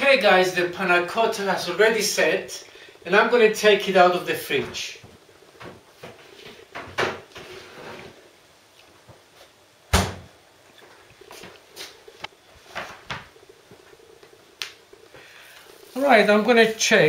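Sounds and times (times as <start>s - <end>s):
refrigerator door shutting: 9.9s - 10.3s.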